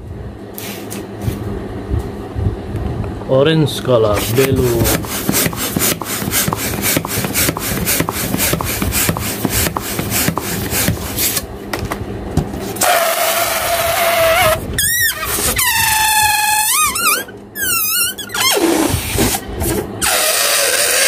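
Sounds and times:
rhythmic puffs inflating balloon: 4.2 - 11.4, 12.8 - 21.0
air squealing from balloon neck: 12.8 - 19.4, 20.0 - 21.0.

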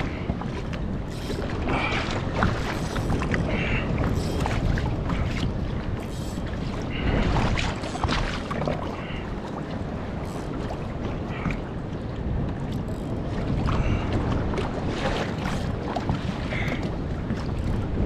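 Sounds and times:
water splashing against kayak hull: 0.0 - 18.0
wind rumbling on microphone: 0.0 - 18.0.

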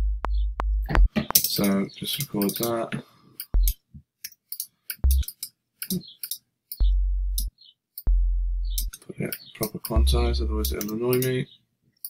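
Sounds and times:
synth sub-bass notes: 0.0 - 1.1, 3.6 - 3.8, 5.0 - 5.2, 6.8 - 7.5, 8.1 - 8.9, 10.0 - 10.8
keyboard and mouse clicks: 0.9 - 2.8, 3.4 - 7.5, 10.6 - 11.3.

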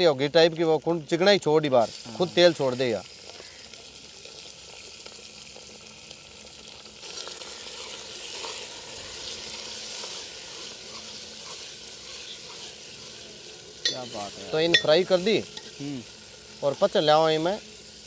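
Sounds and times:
chicken sizzling in a pot: 0.0 - 18.0.

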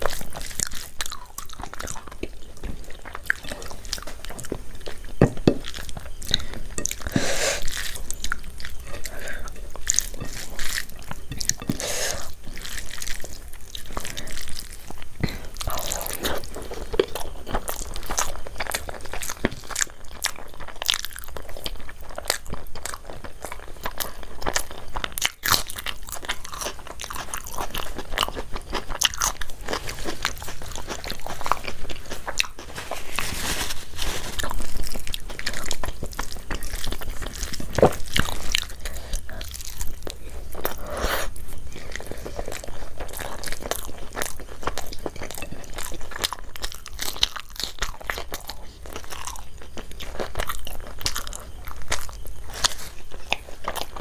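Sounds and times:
person chewing with crisp crunches: 0.0 - 54.0.

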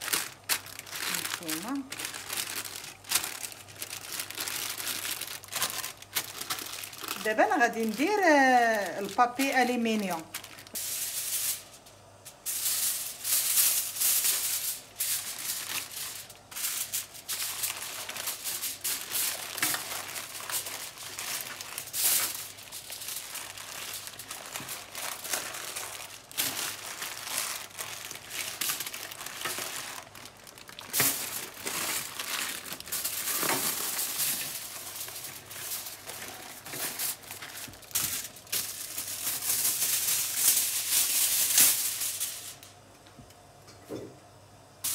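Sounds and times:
foil and paper crinkling: 0.0 - 42.7.

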